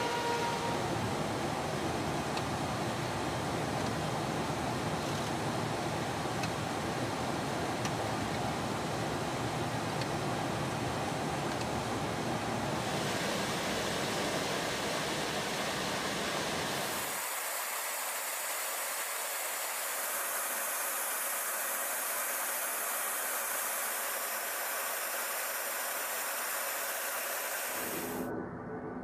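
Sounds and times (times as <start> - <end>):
jet aircraft roar: 0.0 - 3.0, 12.6 - 29.0
high airflow hiss: 0.0 - 28.3.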